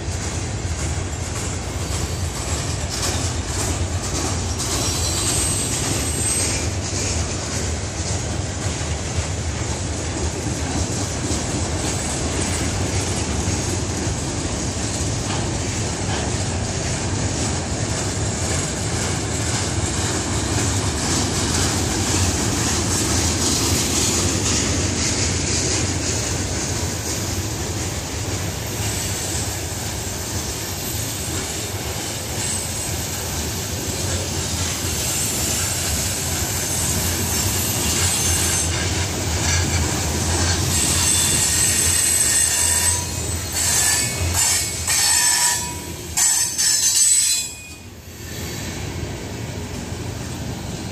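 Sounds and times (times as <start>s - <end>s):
train wheels rumbling on rails: 0.0s - 50.9s
high wheel squeal: 4.6s - 7.2s, 28.8s - 49.1s.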